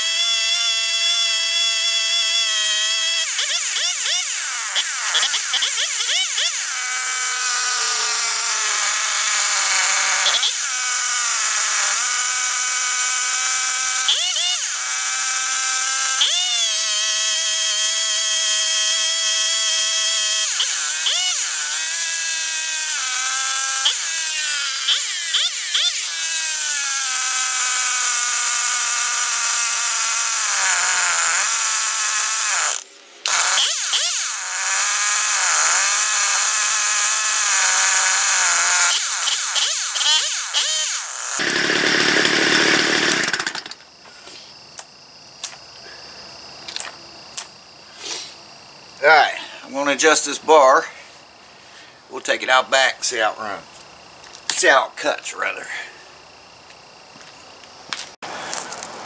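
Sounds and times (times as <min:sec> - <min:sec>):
chainsaw engine revving: 0:26.9 - 0:43.8.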